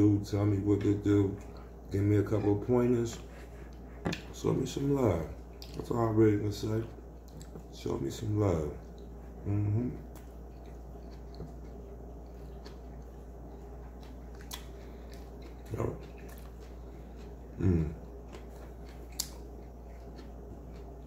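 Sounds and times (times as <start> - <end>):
low room hum: 0.0 - 21.0
person chewing food: 0.0 - 21.0
low vocal sounds: 9.4 - 10.1, 17.6 - 18.1
wet mouth clicks: 19.1 - 19.4.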